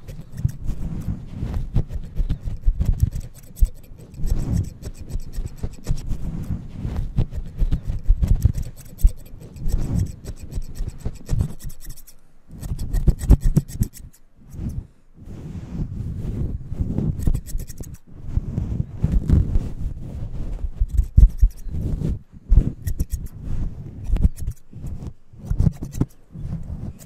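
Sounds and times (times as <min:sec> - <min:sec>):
scissors snipping: 0:00.0 - 0:14.7, 0:17.1 - 0:18.0, 0:20.8 - 0:21.7, 0:22.8 - 0:23.4, 0:24.0 - 0:24.6, 0:25.4 - 0:26.2
rustling scrapes on microphone fur: 0:00.0 - 0:27.0.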